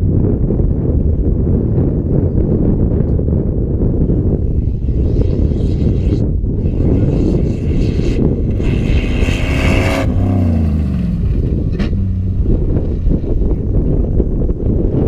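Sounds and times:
wind rumbling on microphone: 0.0s - 15.0s
race car driving past: 7.0s - 13.8s.

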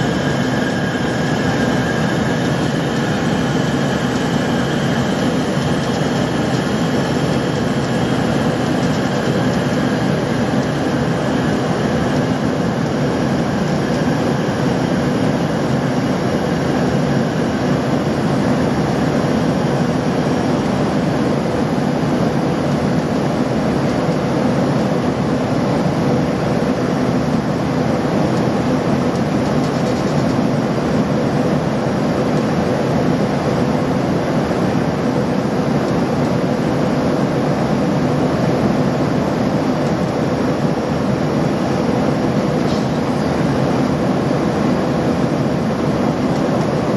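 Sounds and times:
airflow rushing: 0.0s - 20.3s
jet engines in aircraft cabin: 0.0s - 46.9s.

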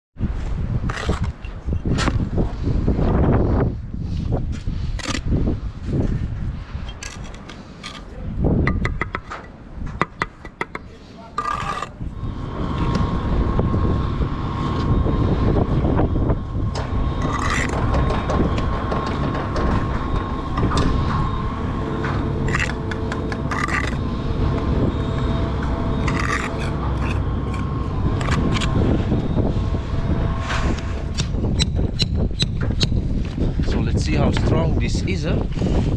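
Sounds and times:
low rumble with high whine: 0.2s - 35.9s
trowel scraping mortar: 0.8s - 2.2s, 10.2s - 12.0s, 17.2s - 17.9s, 22.4s - 24.0s, 25.6s - 28.8s
bricks tapped with trowel clicks: 8.7s - 10.9s.

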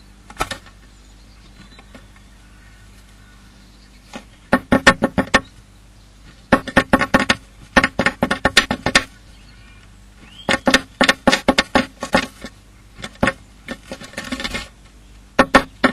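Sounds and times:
bird pecking wood in nest box: 4.1s - 5.5s, 6.3s - 9.1s, 10.2s - 14.7s, 15.4s - 15.9s.

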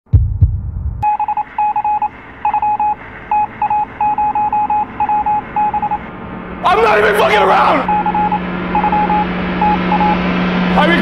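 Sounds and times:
low thump: 0.1s - 1.0s
rapid short electronic beeps: 1.0s - 6.0s, 7.9s - 10.2s.

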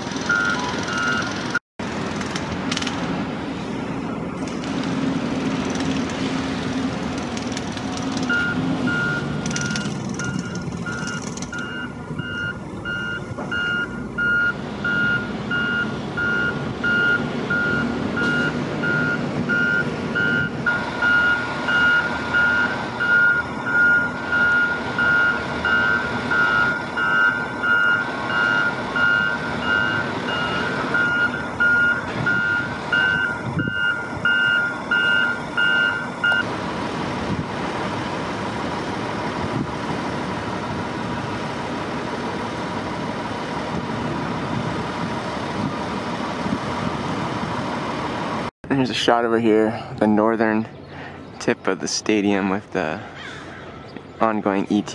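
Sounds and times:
site machinery noise: 0.0s - 54.9s
backup alarm beeping: 0.3s - 1.4s, 8.3s - 36.5s.

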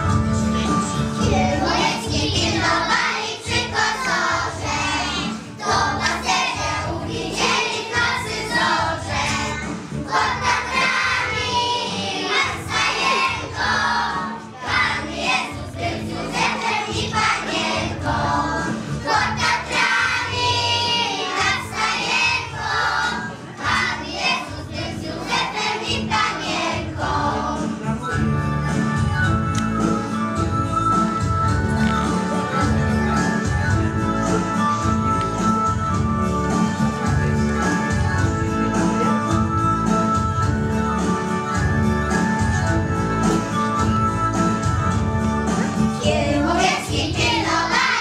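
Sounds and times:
instrumental accompaniment: 0.0s - 48.0s
children singing in unison: 1.2s - 27.7s, 46.0s - 48.0s.

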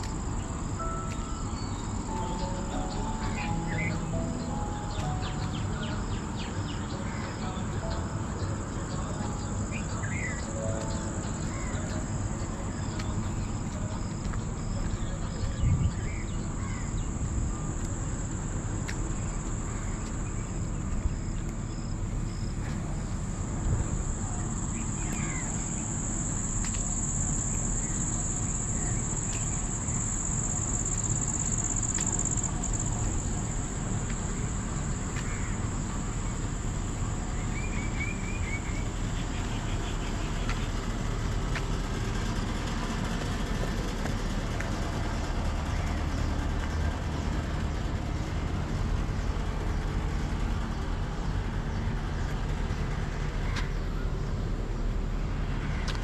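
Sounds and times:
high-pitched insect trill: 0.0s - 43.6s.

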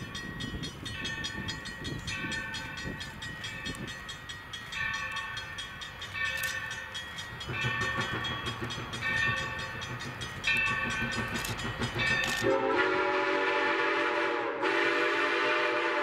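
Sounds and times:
train rumble: 0.0s - 16.0s
steam locomotive whistle blasts: 12.4s - 16.0s.

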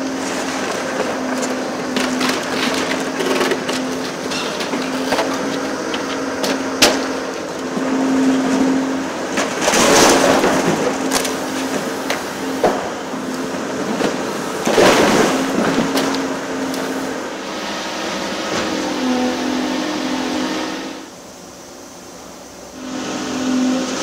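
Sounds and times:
masonry cracking and crunching: 0.0s - 17.3s
falling rubble: 0.0s - 17.4s
excavator engine hum: 0.0s - 24.0s.

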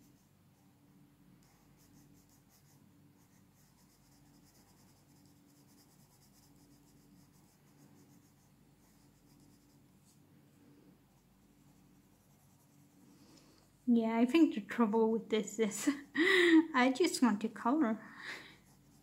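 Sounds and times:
pencil scratching on paper: 0.0s - 0.7s, 1.4s - 10.2s, 11.1s - 13.1s, 18.6s - 19.0s.

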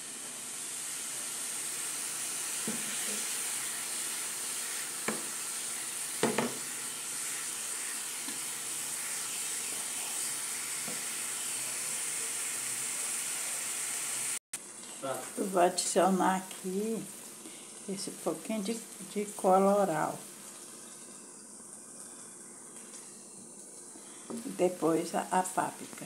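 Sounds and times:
meat sizzling in a frying pan: 0.0s - 26.0s
wooden spoon knocking on pan: 2.6s - 2.9s, 5.0s - 5.3s, 6.2s - 6.6s.

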